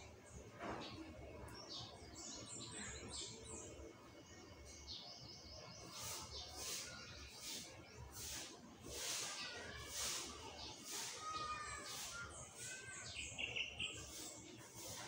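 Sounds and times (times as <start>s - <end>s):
small bird chirping: 0.8s - 8.4s, 10.9s - 15.0s
short hissing swishes: 5.9s - 12.8s.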